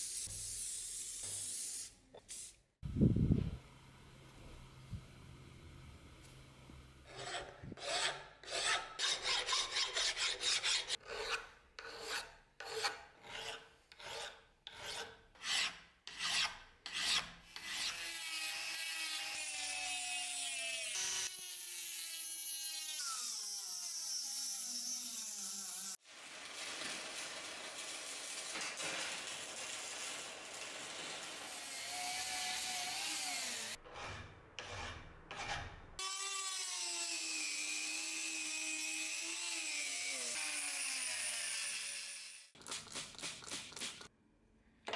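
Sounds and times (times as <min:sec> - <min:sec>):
hand file rasping on metal: 0:07.1 - 0:18.0
rotary tool cutting metal: 0:17.6 - 0:42.6.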